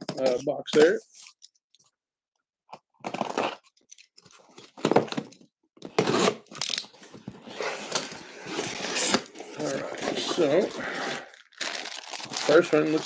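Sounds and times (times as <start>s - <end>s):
cardboard box tearing: 5.9s - 6.8s, 7.5s - 13.0s.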